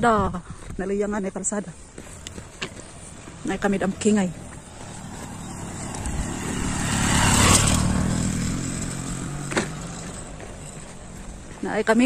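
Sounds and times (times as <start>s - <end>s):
small motorcycle riding past: 2.0s - 12.0s.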